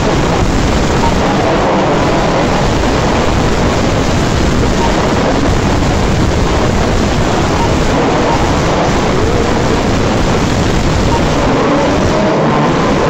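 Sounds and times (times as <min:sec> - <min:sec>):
radio-controlled cars racing on dirt: 0:06.4 - 0:13.0.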